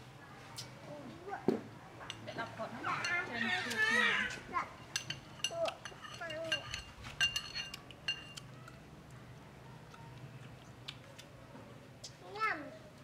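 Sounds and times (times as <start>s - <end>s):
metal spoons clinking on ceramic: 4.8s - 8.5s.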